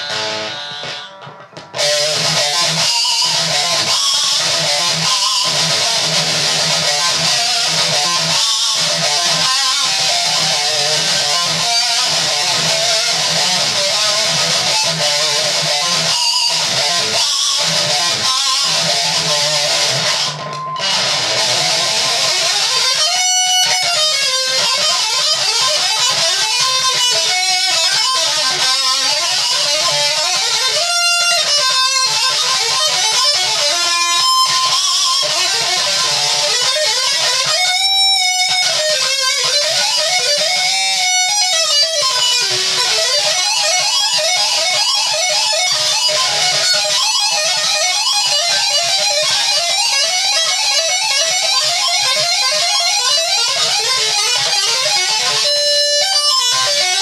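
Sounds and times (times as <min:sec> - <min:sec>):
distorted electric guitar: 0:00.0 - 0:57.0.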